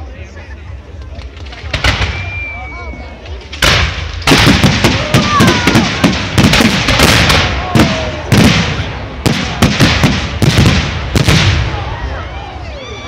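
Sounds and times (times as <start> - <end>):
fireworks bursting: 1.3 - 12.1.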